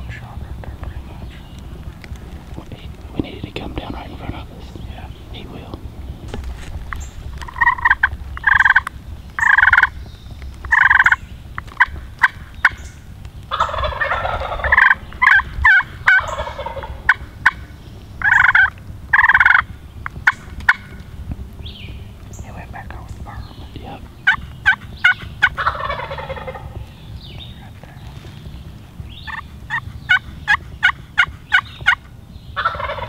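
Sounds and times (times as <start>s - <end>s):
turkey gobble: 7.0s - 10.0s, 10.6s - 21.1s, 23.2s - 26.9s, 29.1s - 33.0s
turkey yelps: 7.4s - 10.0s, 10.6s - 12.9s, 13.5s - 17.6s, 18.2s - 21.0s, 24.2s - 26.9s, 29.2s - 33.0s.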